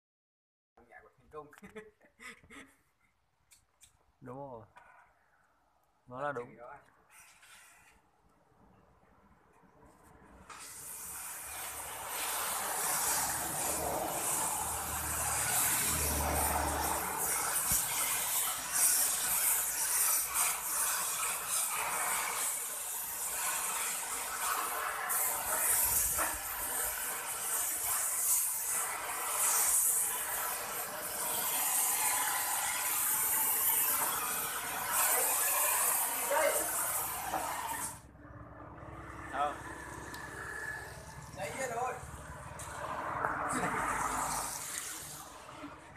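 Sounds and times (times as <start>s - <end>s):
welding torch flame hissing: 10.0s - 38.1s, 39.2s - 45.9s.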